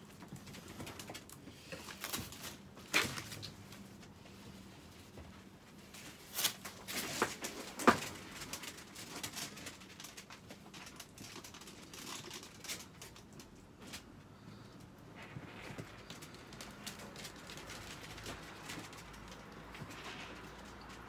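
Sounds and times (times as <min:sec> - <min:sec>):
plastic tarp rustling: 0:05.7 - 0:14.1, 0:15.2 - 0:21.0.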